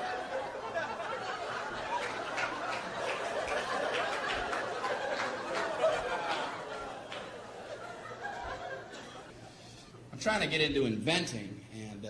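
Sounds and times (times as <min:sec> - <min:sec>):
audience laughing: 0:00.0 - 0:09.6.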